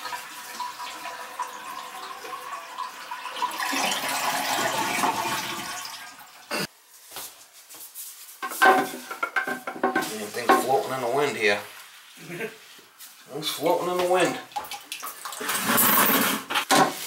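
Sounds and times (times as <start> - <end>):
toilet flushing: 0.0 - 6.5, 14.2 - 16.5.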